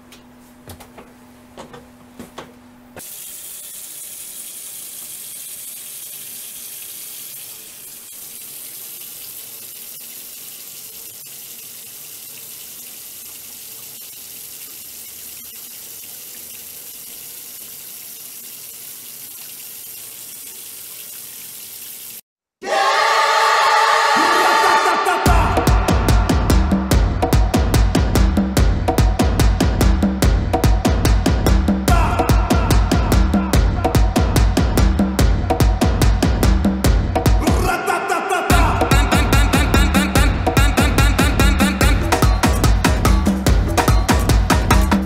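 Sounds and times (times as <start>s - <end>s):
tap water running into sink: 3.0s - 22.2s, 41.7s - 45.0s.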